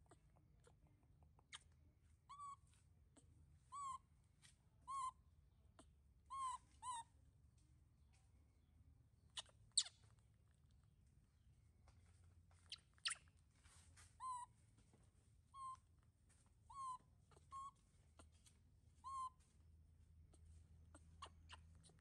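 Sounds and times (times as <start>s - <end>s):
baby monkey cooing: 3.7s - 4.1s, 4.9s - 5.2s, 5.8s - 7.1s, 14.2s - 14.5s, 16.7s - 18.3s, 19.0s - 19.4s, 20.9s - 22.0s.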